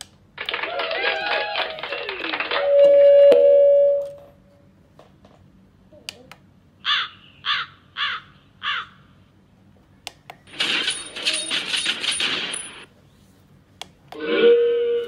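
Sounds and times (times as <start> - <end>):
crow caws: 6.8 - 9.1
crash-like clatter with ringing: 10.5 - 12.9.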